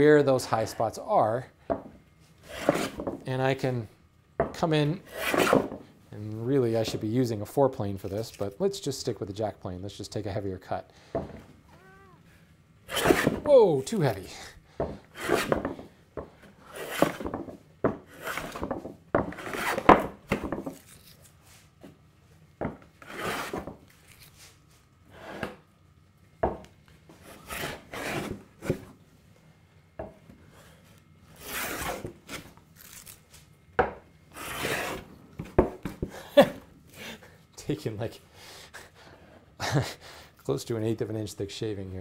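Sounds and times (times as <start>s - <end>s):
hand plane rasping on wood: 2.5s - 3.0s, 15.2s - 15.5s, 23.0s - 23.6s, 34.4s - 35.0s.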